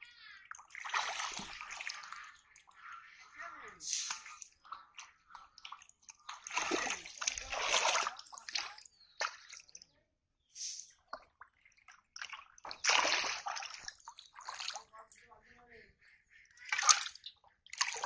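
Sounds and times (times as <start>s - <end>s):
hands splashing in muddy water: 0.5s - 2.2s, 3.8s - 9.8s, 11.0s - 14.9s, 16.7s - 18.0s.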